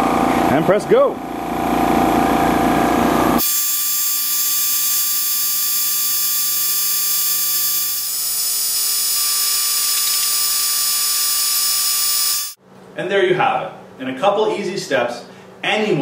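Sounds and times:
laser cutter machine hum: 1.7s - 12.6s.

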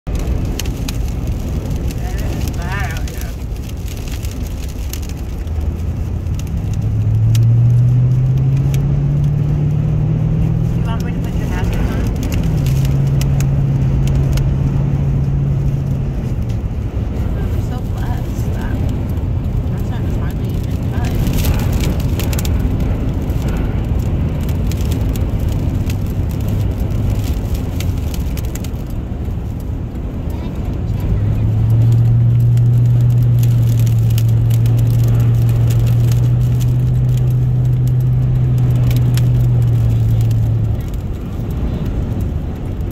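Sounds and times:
truck engine accelerating: 0.0s - 42.9s
wind and road noise: 0.0s - 42.9s
light ticks: 3.3s - 7.6s, 30.2s - 42.8s.

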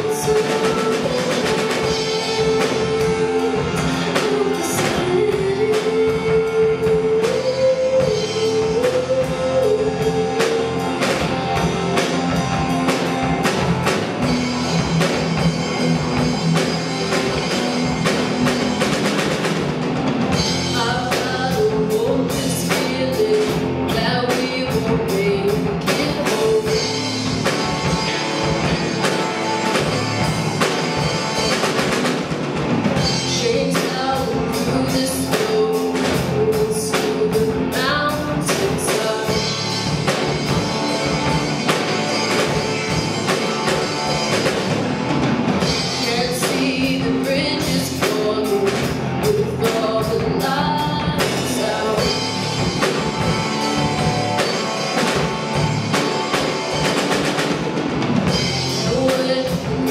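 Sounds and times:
woman singing: 0.0s - 12.4s, 20.4s - 27.9s, 33.0s - 40.4s, 45.6s - 52.4s, 58.6s - 59.9s
rock band playing: 0.0s - 59.9s.

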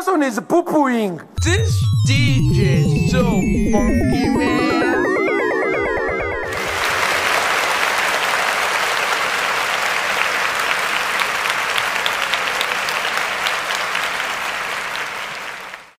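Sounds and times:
crowd applauding: 6.5s - 15.9s.

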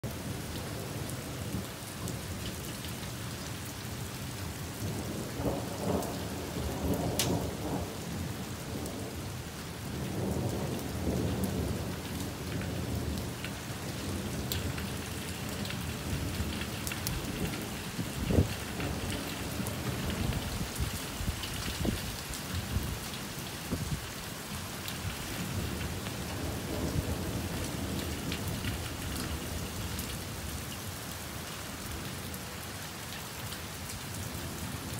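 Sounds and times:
steady rain: 0.0s - 34.9s
wind: 0.0s - 34.9s
thunder rumbling: 4.8s - 9.3s, 9.9s - 24.1s, 25.2s - 29.9s.

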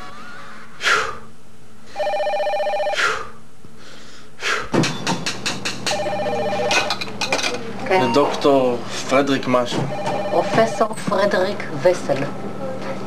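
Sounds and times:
telephone ringing: 1.9s - 3.0s, 5.9s - 7.0s, 9.9s - 11.0s.

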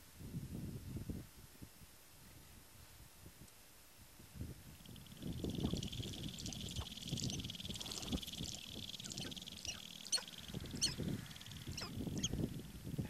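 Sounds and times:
steady high buzz: 4.5s - 13.0s
low bursts: 4.8s - 12.9s
grouse calling: 4.9s - 12.6s.

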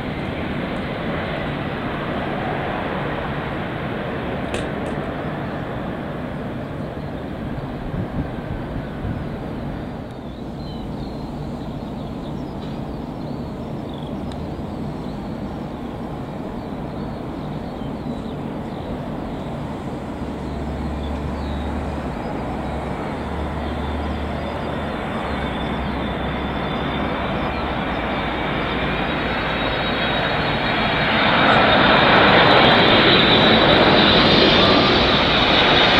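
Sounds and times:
high jet engine whine: 0.0s - 35.9s
jet engines rumbling: 0.0s - 35.9s.

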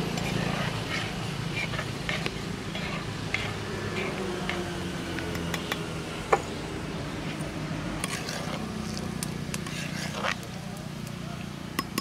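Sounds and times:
metal ladle scraping clay pot: 0.0s - 4.7s, 7.2s - 10.6s.

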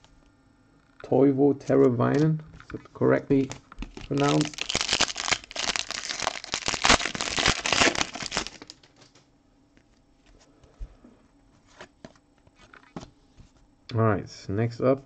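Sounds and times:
foil wrapper crinkling and tearing: 3.4s - 9.2s.

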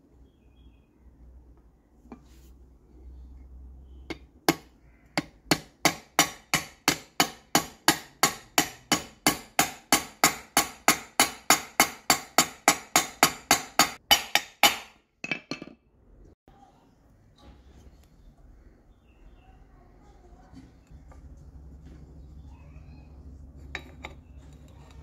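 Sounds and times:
hammer tapping metal: 4.1s - 15.7s.

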